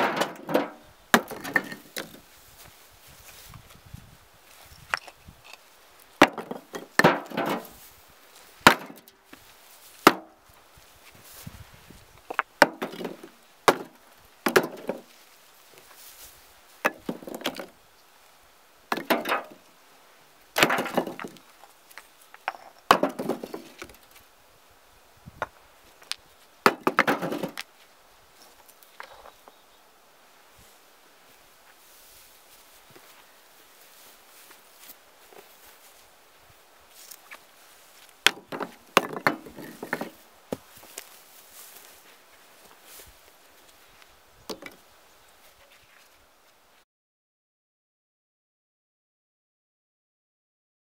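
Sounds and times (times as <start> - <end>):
bricks clattering: 0.0 - 2.2, 4.9 - 5.6, 6.2 - 7.8, 8.6 - 9.1, 12.3 - 15.1, 16.9 - 17.7, 18.9 - 19.6, 20.6 - 21.7, 22.3 - 24.1, 25.4 - 27.7, 38.2 - 41.0
bricks knocking into wheelbarrow: 0.0 - 2.2, 6.2 - 7.8, 8.6 - 9.1, 10.0 - 10.4, 12.3 - 15.1, 16.9 - 17.7, 18.9 - 19.6, 20.6 - 21.4, 22.4 - 24.0, 26.6 - 27.7, 38.2 - 40.7.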